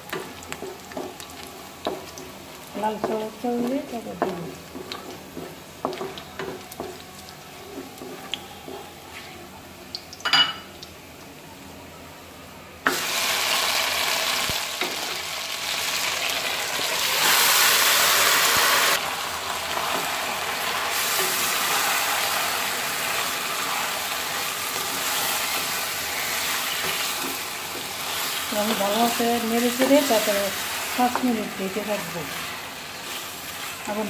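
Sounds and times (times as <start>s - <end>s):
oil frying: 0.0s - 8.5s, 12.8s - 34.0s
wooden spatula stirring: 0.1s - 9.4s, 23.1s - 34.0s
beef sizzling in hot oil: 12.9s - 34.0s.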